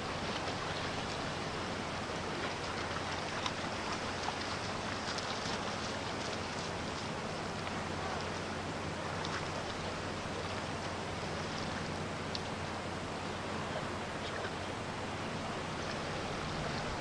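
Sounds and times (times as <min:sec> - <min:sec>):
small waves lapping: 0:00.0 - 0:17.0
wind: 0:00.0 - 0:17.0
faint clicks: 0:12.3 - 0:12.6.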